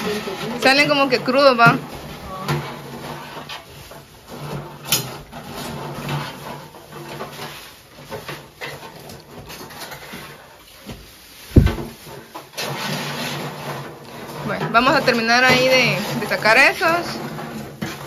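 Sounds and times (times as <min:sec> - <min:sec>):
heavy thump: 0:11.5 - 0:11.9
tongs scraping metal trays: 0:12.5 - 0:18.0.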